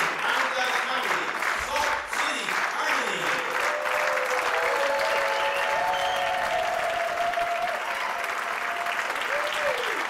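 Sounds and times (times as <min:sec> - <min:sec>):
audience applauding: 0:00.0 - 0:10.0
crowd cheering: 0:03.3 - 0:10.0.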